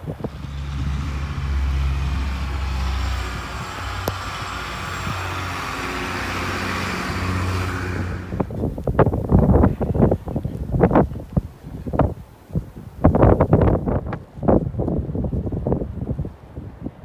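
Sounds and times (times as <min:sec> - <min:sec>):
low engine drone: 0:00.0 - 0:08.7
bus passing by: 0:00.0 - 0:09.6.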